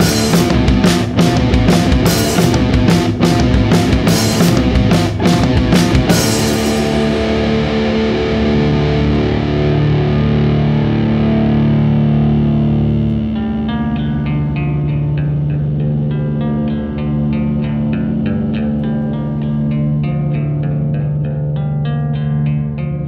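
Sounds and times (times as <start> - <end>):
drum hits: 0.0 - 7.8
distorted electric guitar and bass: 0.0 - 23.0.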